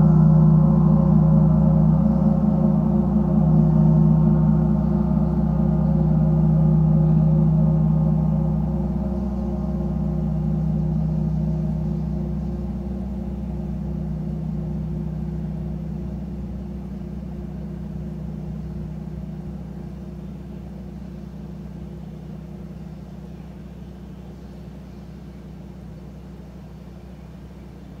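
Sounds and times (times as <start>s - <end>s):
gong ringing: 0.0s - 20.8s.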